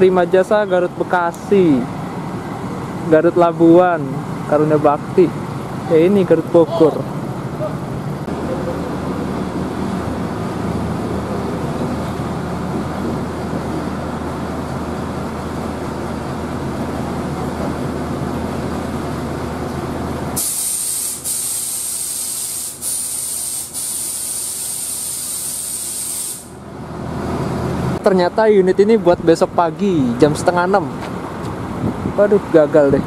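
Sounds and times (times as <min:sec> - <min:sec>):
bus engine idling: 0:00.0 - 0:33.0.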